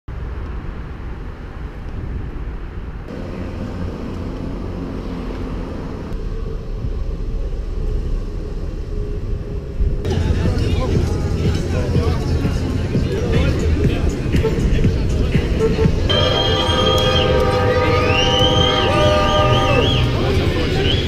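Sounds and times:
road rumble of riding: 0.1s - 16.4s.

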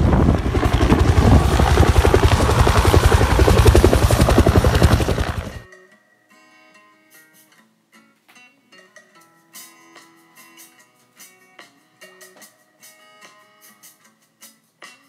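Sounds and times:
helicopter rotor beating: 0.0s - 5.6s
low engine rumble: 0.0s - 5.6s.

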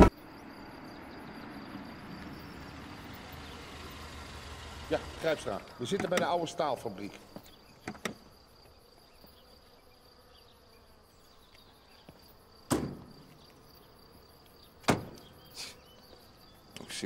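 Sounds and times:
high chirring like crickets: 0.0s - 17.0s
car door shutting: 2.1s - 6.5s, 7.2s - 8.3s, 14.8s - 15.3s.

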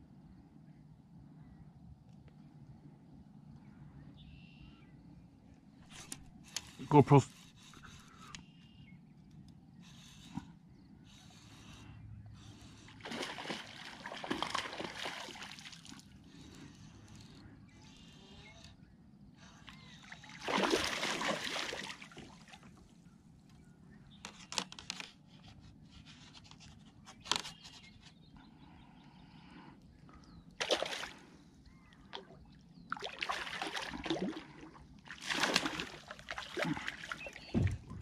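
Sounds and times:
fish splashing at water surface: 12.9s - 16.1s, 20.0s - 22.7s, 30.6s - 31.3s, 32.2s - 38.0s.

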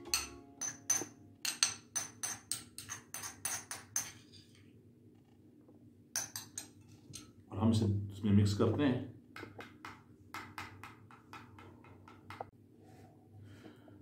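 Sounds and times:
metal spoon clinking in ceramic bowl: 0.0s - 4.2s, 6.2s - 7.3s.

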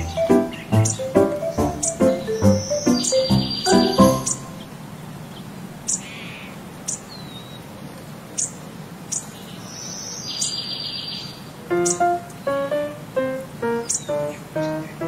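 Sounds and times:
plucked guitar music: 0.0s - 4.4s
birds chirping: 0.0s - 15.0s.

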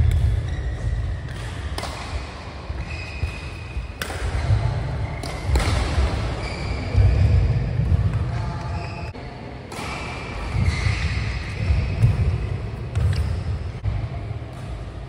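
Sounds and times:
shoes squeaking on court: 0.0s - 1.5s, 5.0s - 9.2s, 10.2s - 13.8s
rackets striking shuttlecock: 0.0s - 8.8s, 9.7s - 13.8s.

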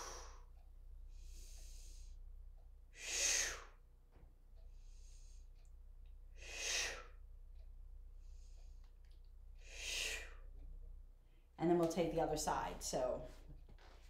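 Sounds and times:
woman exhaling forcefully: 6.4s - 7.1s.

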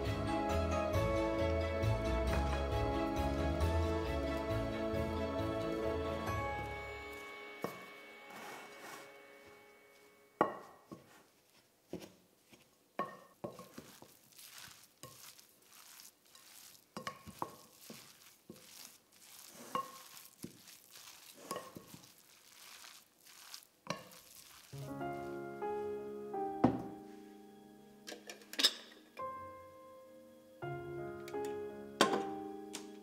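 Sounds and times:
vegetables rustling and squishing: 10.7s - 25.5s.

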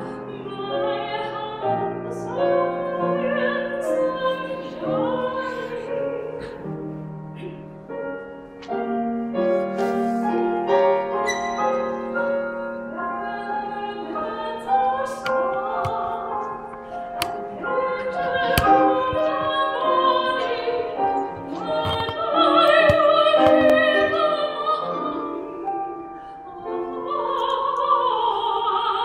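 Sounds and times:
grand piano: 0.0s - 29.0s
woman singing operatically: 0.1s - 6.5s, 12.6s - 29.0s.

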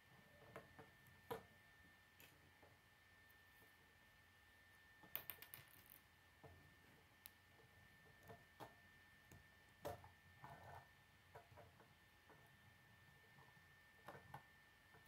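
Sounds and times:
faint high tone hum: 0.0s - 15.0s.

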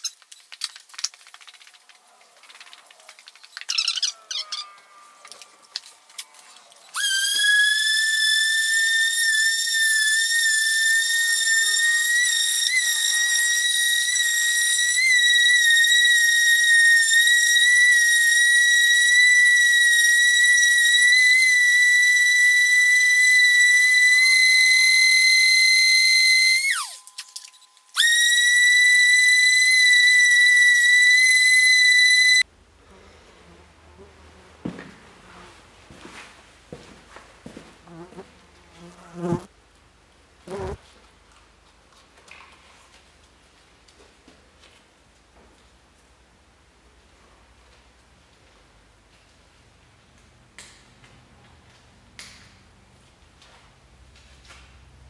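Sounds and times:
rotary tool whining: 7.0s - 32.4s.

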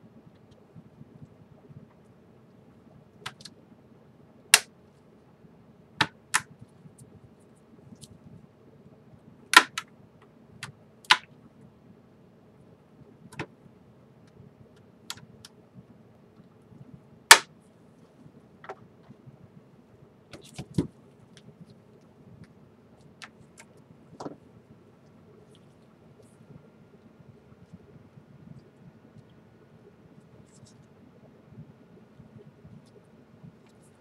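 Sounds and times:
plastic clips snapping: 9.6s - 9.9s.

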